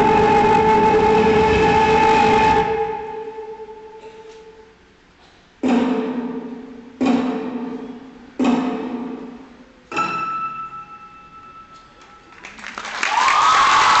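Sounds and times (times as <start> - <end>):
crowd cheering and applauding: 12.3 - 14.0.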